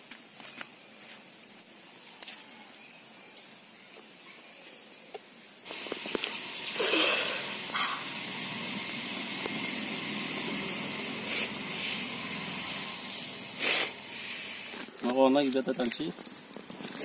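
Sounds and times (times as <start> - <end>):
steady outdoor hiss: 0.0 - 17.0.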